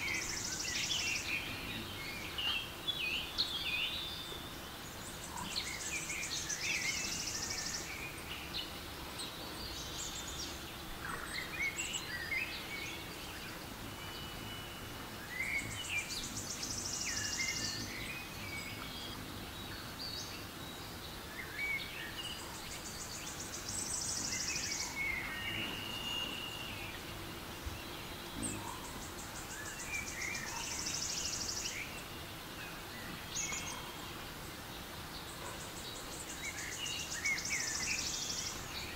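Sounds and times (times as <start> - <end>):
birdsong chirps and whistles: 0.0 - 38.9.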